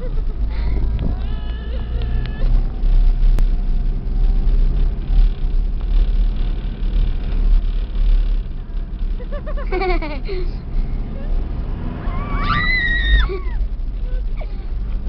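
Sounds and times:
vehicle engine low rumble: 0:00.0 - 0:15.0.

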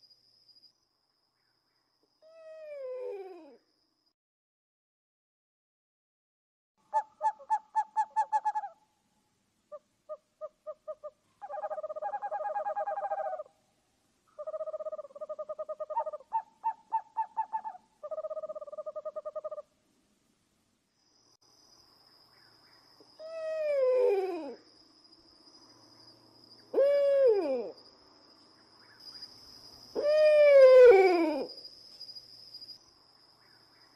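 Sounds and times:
owl hooting and trilling: 0:02.2 - 0:03.6, 0:06.9 - 0:08.8, 0:09.7 - 0:13.6, 0:14.3 - 0:19.7, 0:23.1 - 0:24.7, 0:26.6 - 0:27.8, 0:29.9 - 0:31.7.

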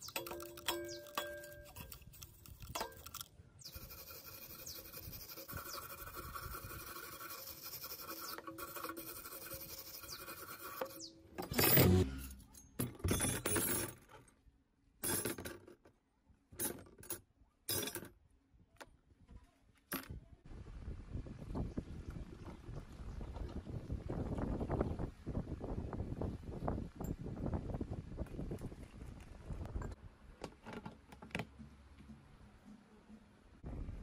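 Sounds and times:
small metal parts clattering: 0:00.0 - 0:03.3, 0:11.4 - 0:14.4, 0:15.0 - 0:15.9, 0:16.6 - 0:18.2
metal being scraped: 0:00.0 - 0:12.6.

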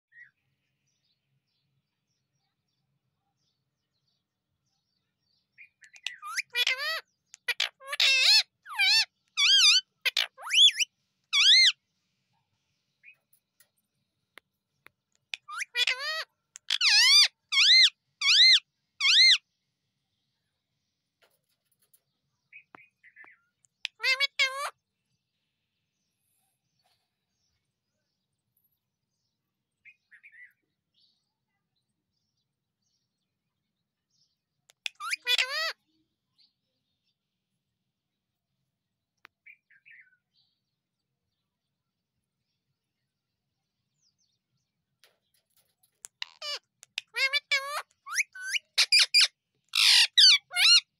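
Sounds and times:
soft bird chirps: 0:00.1 - 0:50.9
parakeet calling: 0:05.9 - 0:11.7, 0:15.3 - 0:19.4, 0:23.8 - 0:24.7, 0:34.7 - 0:35.7, 0:46.0 - 0:50.9.

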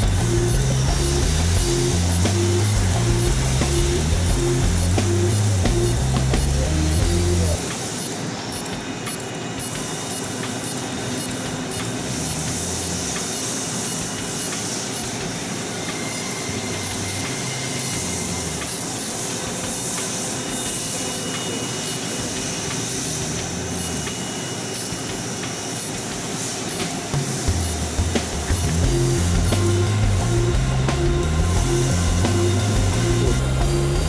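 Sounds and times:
low hum: 0:00.0 - 0:07.6, 0:27.5 - 0:34.0
machine hiss: 0:00.0 - 0:34.0.

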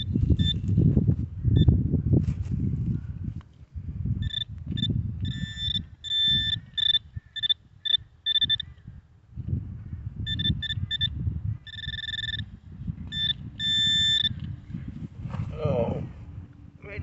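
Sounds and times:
metal detector beeping: 0:00.0 - 0:00.7, 0:04.2 - 0:08.7, 0:10.3 - 0:12.5, 0:13.1 - 0:14.5
low rumble: 0:14.5 - 0:17.0.

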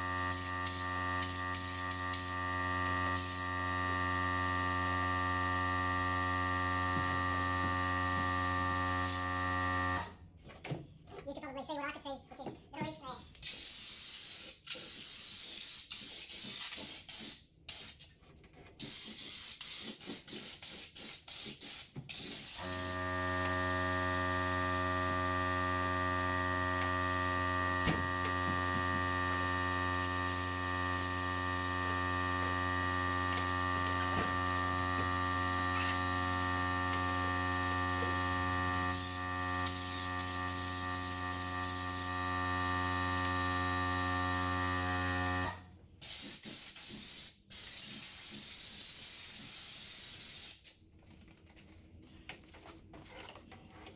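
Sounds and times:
spray gun hissing: 0:30.0 - 0:31.8, 0:38.9 - 0:42.1, 0:46.0 - 0:50.7.

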